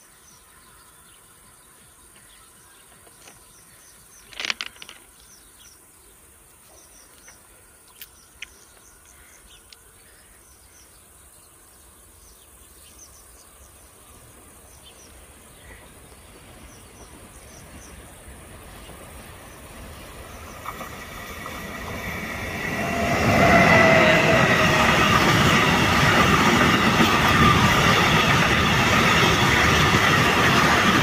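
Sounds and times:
cluster of clicks: 0:04.2 - 0:05.1.

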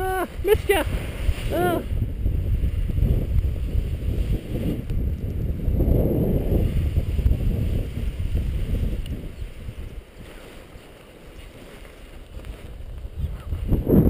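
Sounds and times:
gusty wind buffeting microphone: 0:00.0 - 0:14.0.

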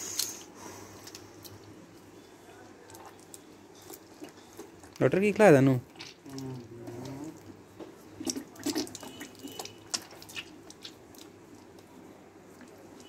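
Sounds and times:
liquid splashing on stone: 0:08.2 - 0:11.3.

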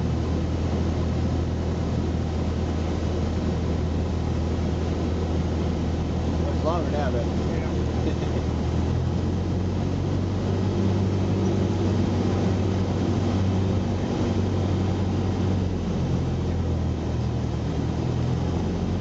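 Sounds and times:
propeller plane engine drone: 0:00.0 - 0:19.0.

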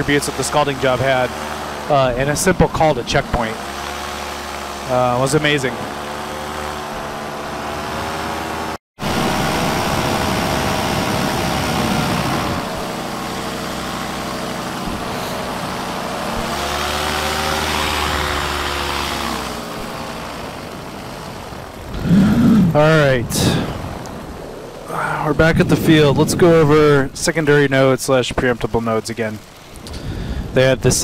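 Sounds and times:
paramotor engine running: 0:00.0 - 0:31.0
wind noise: 0:21.9 - 0:27.6, 0:29.8 - 0:31.0.

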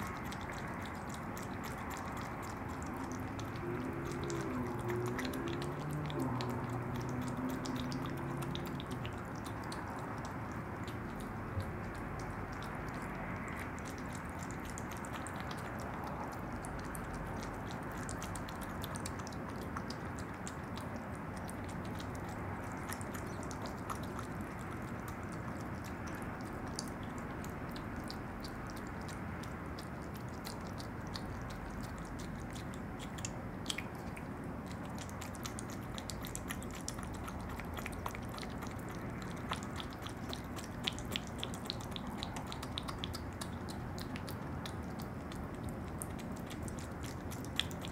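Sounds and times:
animal wet smacking and licking: 0:00.0 - 0:47.9.

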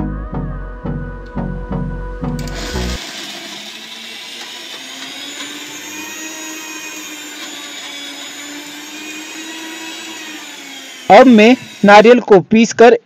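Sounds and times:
background music: 0:00.0 - 0:03.0
mixer grinder motor running: 0:02.3 - 0:12.3.

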